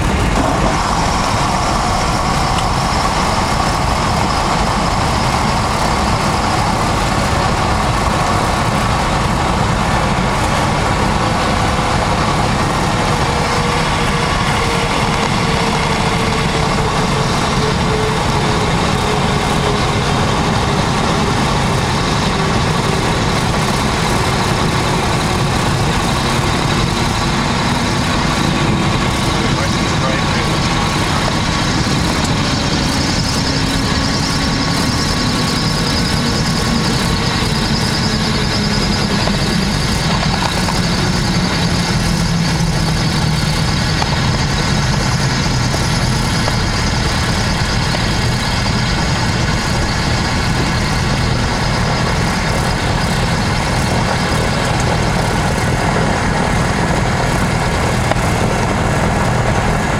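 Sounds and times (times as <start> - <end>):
twin engines droning in cabin: 0.0 - 59.9.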